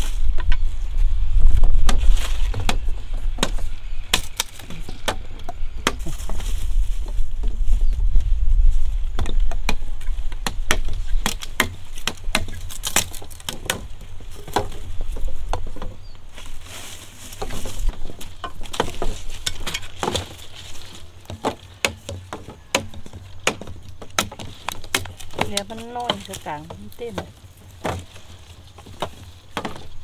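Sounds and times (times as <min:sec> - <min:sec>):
knives chopping sugar cane: 0:10.4 - 0:13.9, 0:21.3 - 0:28.1.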